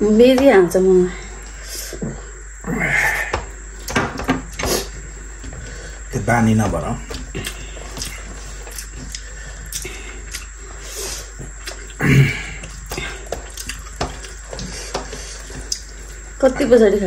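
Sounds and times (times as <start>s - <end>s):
mouth chewing and smacking: 7.2s - 16.2s.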